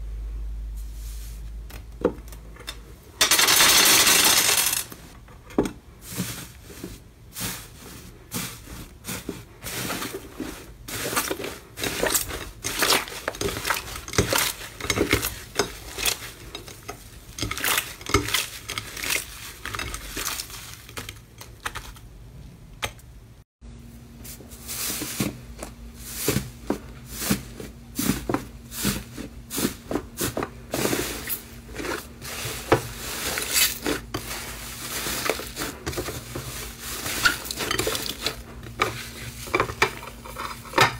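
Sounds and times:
faint steady hum: 0.0s - 3.3s
slime crackling and squelching: 7.4s - 22.0s.

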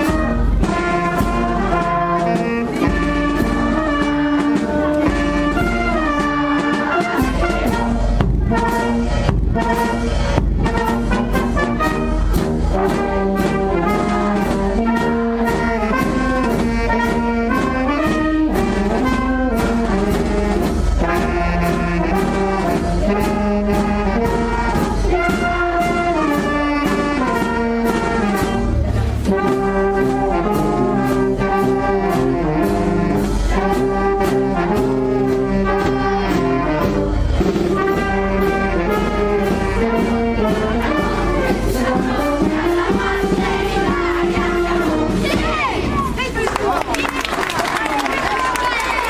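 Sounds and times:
wind band playing: 0.0s - 49.0s.

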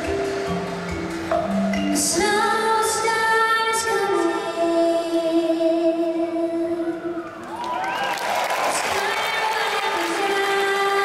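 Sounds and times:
women singing sustained notes: 1.8s - 7.5s, 8.7s - 11.0s
audience applause: 7.4s - 11.0s.

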